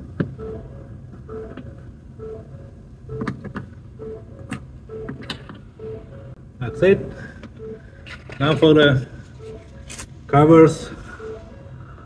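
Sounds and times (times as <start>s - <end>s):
short beeps: 4.0s - 11.9s.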